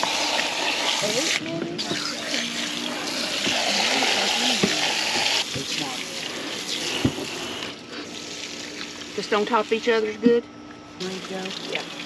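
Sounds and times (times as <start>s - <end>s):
hose nozzle spraying water: 0.0s - 9.0s.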